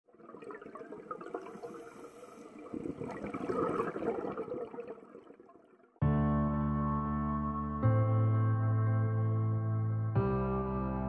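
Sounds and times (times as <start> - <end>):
water bubbling and gurgling: 0.0 - 6.0.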